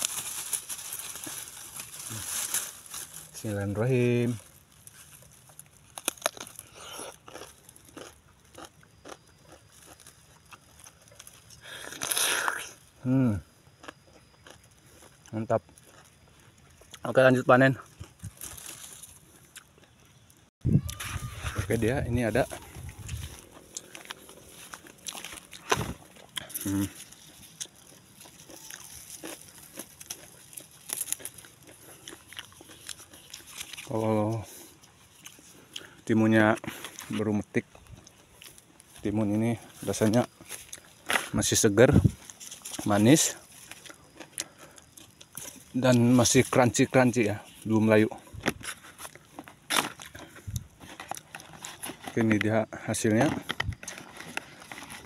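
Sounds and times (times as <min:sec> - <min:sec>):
leaves rustling and crackling: 0:00.0 - 0:06.7, 0:17.6 - 0:19.5, 0:20.8 - 0:35.6, 0:38.1 - 0:44.1
crisp cucumber crunching: 0:00.0 - 0:55.0.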